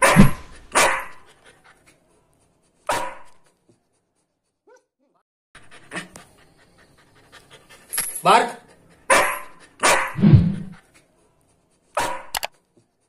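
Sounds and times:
puppy breathing in huffs: 0:08.6 - 0:11.1.

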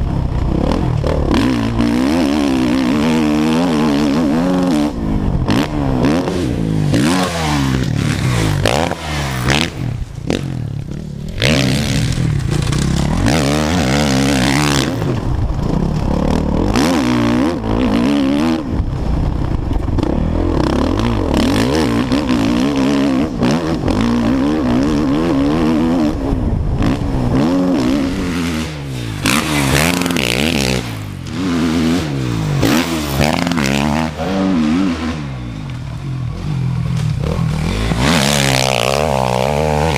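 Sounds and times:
motocross engine revving: 0:00.0 - 0:39.9
wind rushing on microphone: 0:23.4 - 0:31.2.

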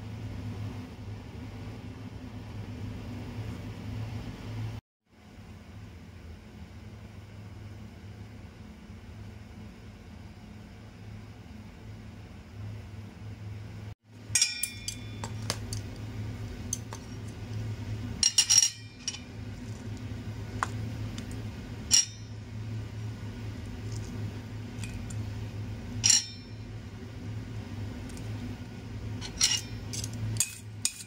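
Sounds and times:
steady low hum: 0:00.0 - 0:31.0
utensil clinking on steel bowl: 0:14.3 - 0:15.9, 0:18.2 - 0:19.3, 0:21.9 - 0:22.4, 0:26.0 - 0:26.6, 0:29.2 - 0:31.0.

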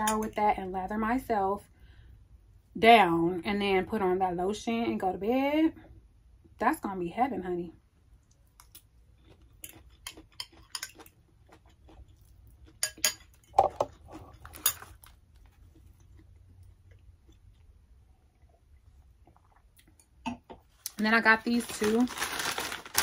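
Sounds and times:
chewing: 0:08.2 - 0:20.1.

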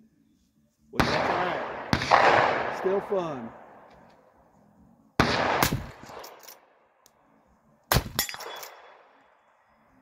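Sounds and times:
rifle shots: 0:01.0 - 0:03.9, 0:05.2 - 0:06.7, 0:07.9 - 0:09.2.

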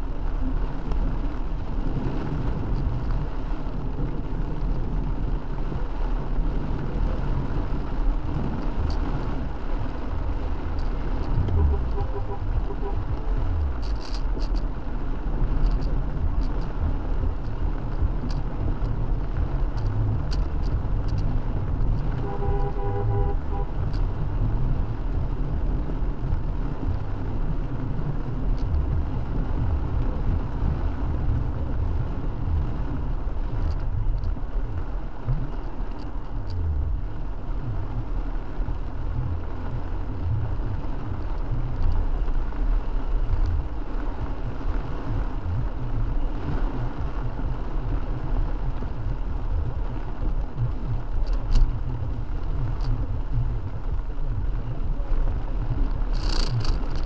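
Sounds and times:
car engine and tyre rumble: 0:00.0 - 0:57.0
rain hiss: 0:00.0 - 0:57.0
faint clicks: 0:15.6 - 0:16.8, 0:19.8 - 0:22.2, 0:35.3 - 0:36.6, 0:51.2 - 0:51.8, 0:52.6 - 0:53.0, 0:56.1 - 0:57.0.

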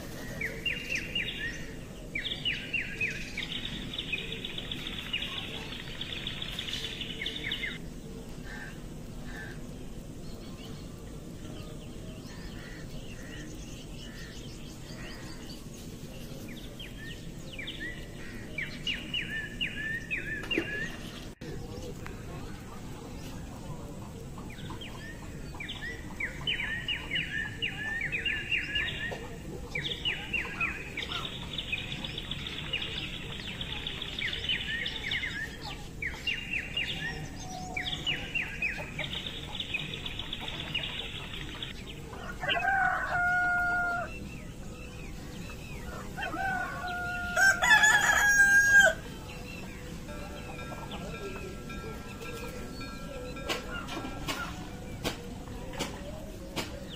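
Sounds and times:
small birds chirping: 0:00.0 - 0:56.9
rooster crowing: 0:42.1 - 0:44.2, 0:45.8 - 0:49.3.

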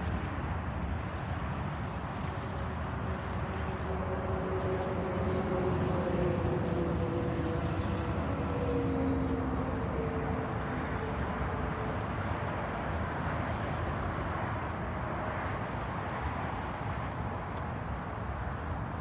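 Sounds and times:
distant engine drone: 0:00.0 - 0:12.6.

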